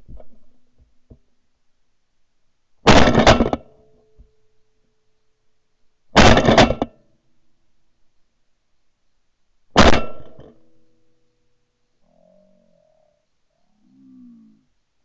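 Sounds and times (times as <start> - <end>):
shotgun blasts: 2.9 - 3.6, 6.2 - 6.9, 9.8 - 10.5.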